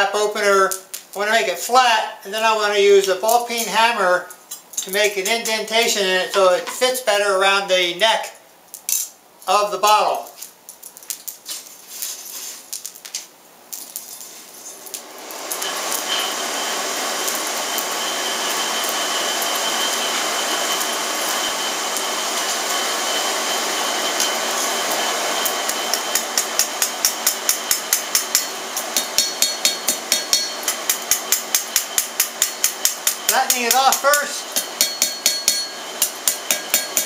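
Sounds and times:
steady rushing noise: 14.7 - 37.0
hammer striking steel on anvil: 24.0 - 37.0.

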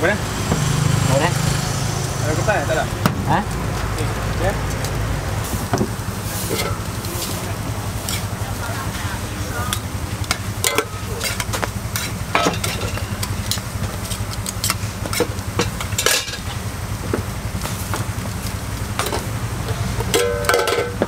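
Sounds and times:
steady low hum: 0.0 - 21.0
burger patties sizzling on griddle: 0.2 - 21.0
metal tongs clicking and scraping: 8.0 - 8.4, 9.7 - 16.6.

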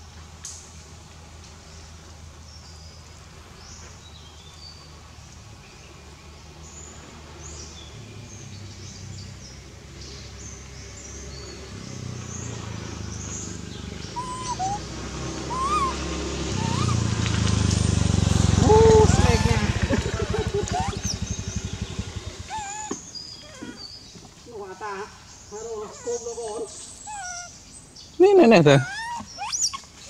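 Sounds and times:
small birds chirping: 1.5 - 30.0
short squeaks rising and falling: 14.2 - 17.2
steady low rumble: 18.3 - 22.8.

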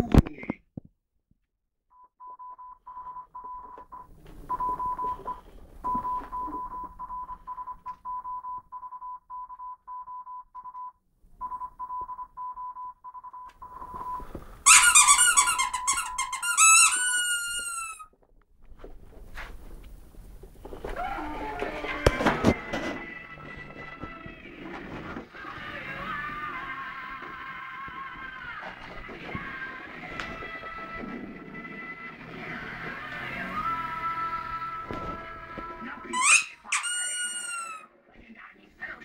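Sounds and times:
morse code beeping: 2.2 - 14.3, 15.1 - 16.7.

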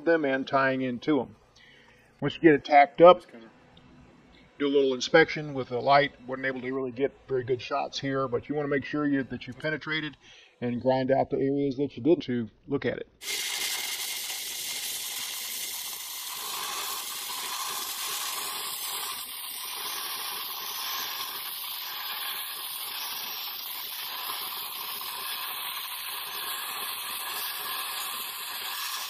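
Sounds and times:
welding arc hissing and sizzling: 13.2 - 29.0.

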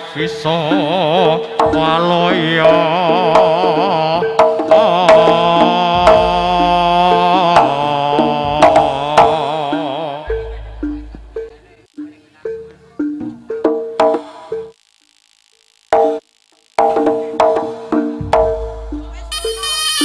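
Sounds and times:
gamelan music: 5.4 - 14.0, 18.0 - 20.0
high melody with vibrato: 19.3 - 20.0.

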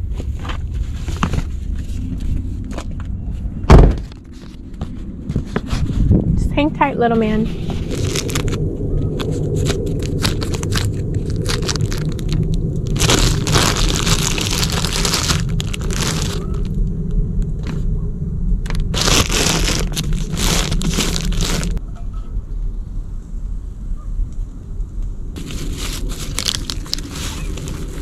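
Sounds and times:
low rumble: 0.0 - 28.0
plastic bag crinkling: 7.6 - 16.8, 18.7 - 21.8, 25.4 - 28.0.

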